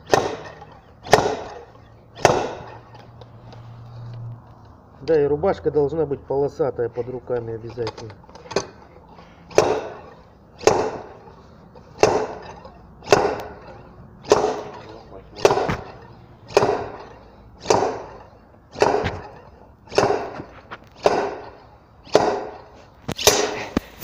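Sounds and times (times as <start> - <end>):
slide hammer metal blows: 0.0 - 3.1, 8.4 - 24.0.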